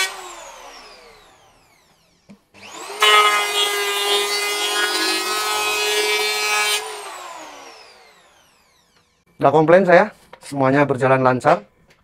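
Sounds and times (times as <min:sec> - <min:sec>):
electric planer cutting wood: 0:00.0 - 0:09.0.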